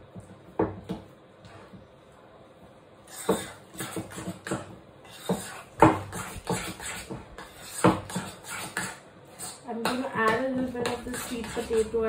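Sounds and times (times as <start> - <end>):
metal spoon scraping ceramic bowl: 10.7 - 12.0.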